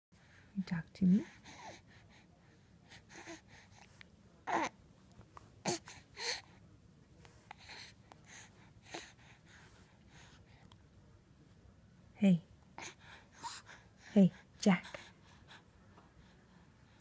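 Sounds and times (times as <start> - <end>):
baby cooing: 4.5 - 4.7.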